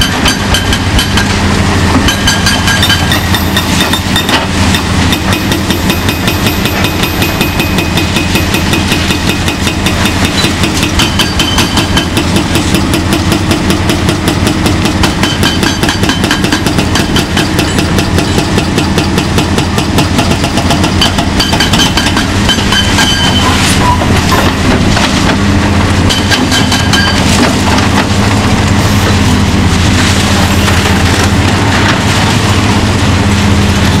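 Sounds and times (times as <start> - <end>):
diesel engine drone: 0.0 - 34.0
hydraulic hammer breaking concrete: 2.0 - 23.4, 24.1 - 28.1.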